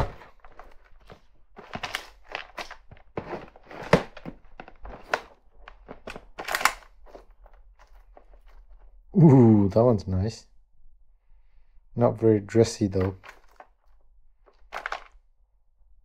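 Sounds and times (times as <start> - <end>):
plastic drawers opening and shutting: 0.0 - 8.6, 12.9 - 13.8, 14.5 - 15.2
rummaging through packages: 0.0 - 9.0, 12.9 - 15.2.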